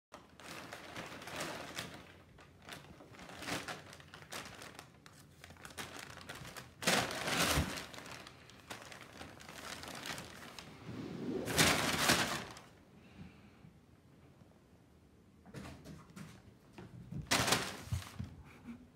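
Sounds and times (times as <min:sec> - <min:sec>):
packing paper crinkling: 0:00.2 - 0:10.6.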